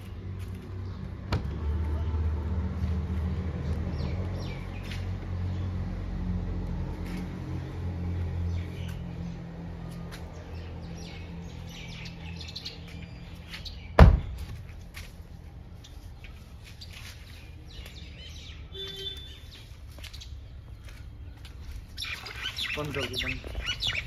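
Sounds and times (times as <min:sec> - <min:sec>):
birds chirping: 0:00.0 - 0:06.4, 0:07.0 - 0:24.0
car door shutting: 0:01.3 - 0:01.6, 0:14.0 - 0:14.4.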